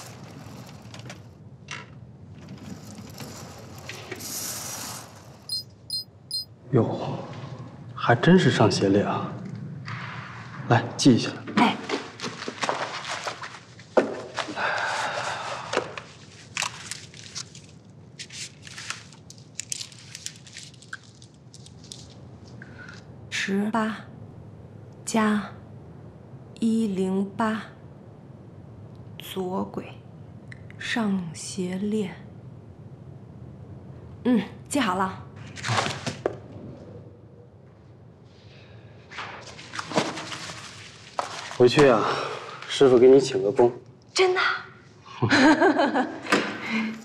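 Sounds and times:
trolley rumbling and rattling on rail: 0.0s - 5.4s
clothing rustling: 16.0s - 22.6s, 39.2s - 41.7s.

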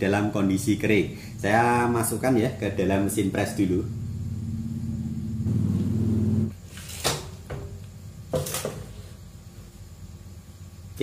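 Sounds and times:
machine motor hum: 3.2s - 6.5s.

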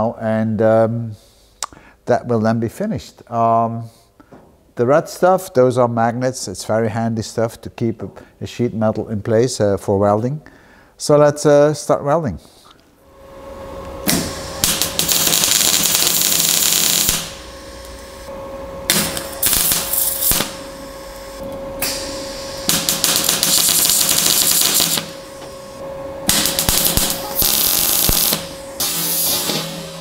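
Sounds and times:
steady hum: 12.4s - 30.0s
welding arc crackling: 14.0s - 30.0s.

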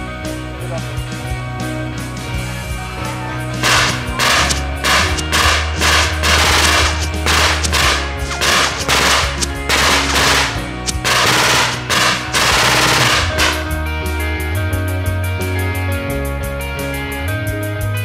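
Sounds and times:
rock music with bass: 0.0s - 18.0s
automatic gunfire bursts: 3.6s - 13.8s.

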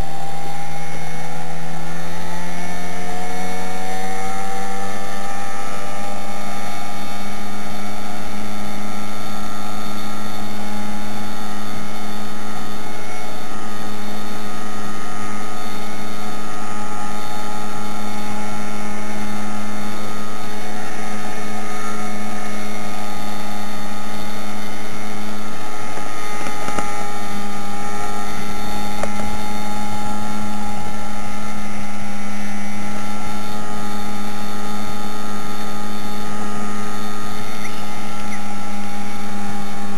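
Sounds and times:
motorboat engine running: 0.0s - 39.9s.

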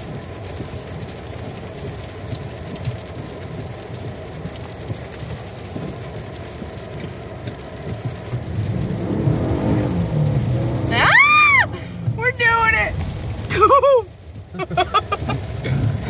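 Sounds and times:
tyres and engine rumble in car: 0.0s - 16.0s
faint ticks: 0.5s - 10.8s.

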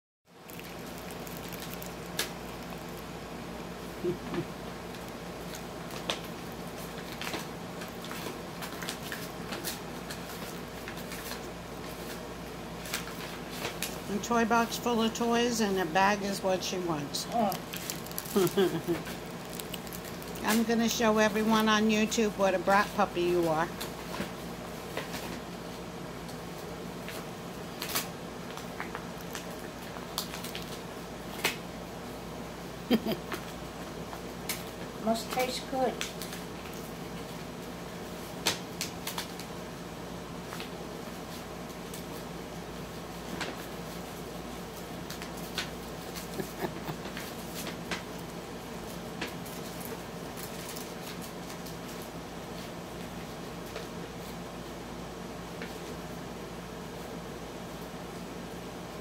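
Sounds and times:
low room hum: 0.3s - 59.0s
dog tearing paper bag: 0.4s - 3.1s, 17.6s - 20.6s.

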